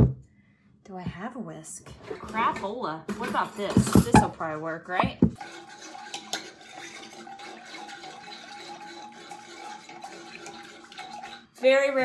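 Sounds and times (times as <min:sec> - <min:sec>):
fork whisking in a saucepan: 0:05.4 - 0:12.0.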